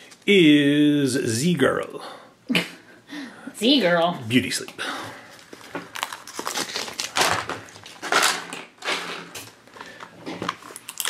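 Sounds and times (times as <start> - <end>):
plastic wrap crinkling: 5.3 - 11.0.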